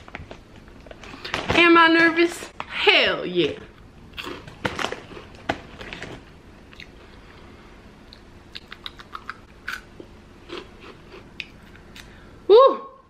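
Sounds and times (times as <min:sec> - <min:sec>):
person crunching snack: 0:04.1 - 0:05.3, 0:08.5 - 0:12.1
chewing with small crackles: 0:08.1 - 0:09.8.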